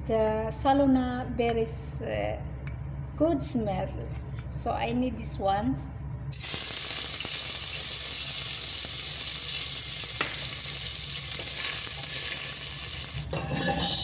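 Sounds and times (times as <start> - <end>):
leaves sizzling in hot oil: 6.3 - 13.4.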